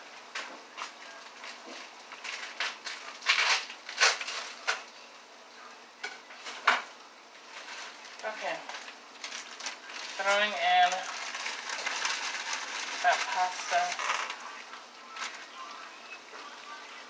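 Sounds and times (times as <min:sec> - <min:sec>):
plastic bag crinkling: 0:07.4 - 0:14.6.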